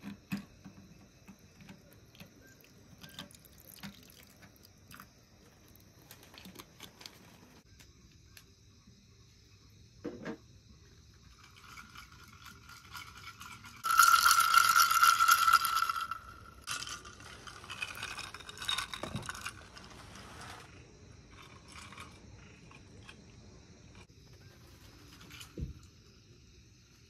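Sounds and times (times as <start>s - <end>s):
ice cubes clinking in a glass: 11.4s - 20.0s.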